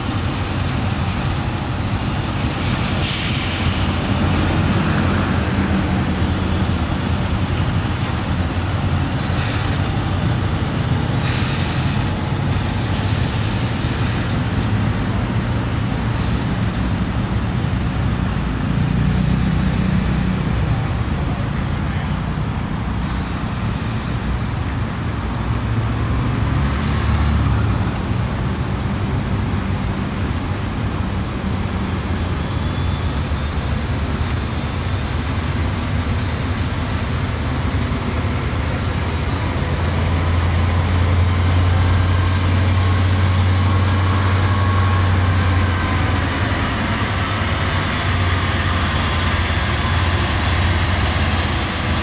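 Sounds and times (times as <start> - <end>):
road traffic noise: 0.0 - 52.0
truck engine running low: 27.5 - 52.0.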